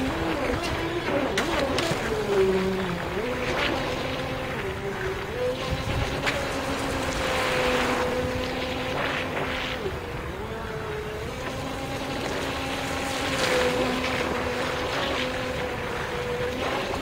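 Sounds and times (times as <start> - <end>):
electric motor whine: 0.0 - 17.0.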